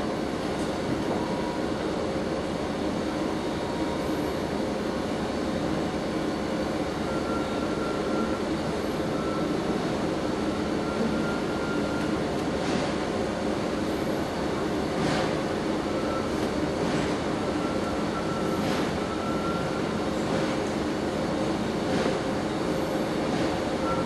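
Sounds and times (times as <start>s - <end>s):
train wheels rumbling on rails: 9.4s - 24.0s.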